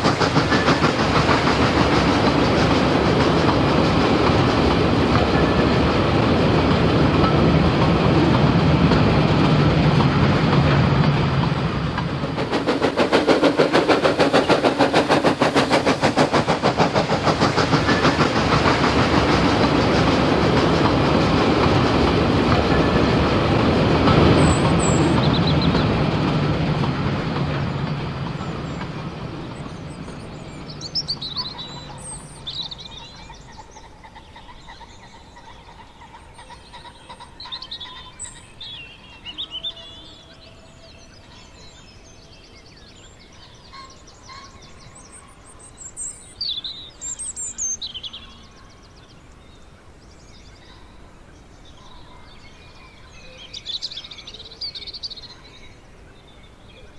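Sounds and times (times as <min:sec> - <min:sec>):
train rumble: 0:00.0 - 0:56.9
birds chirping: 0:11.4 - 0:56.9.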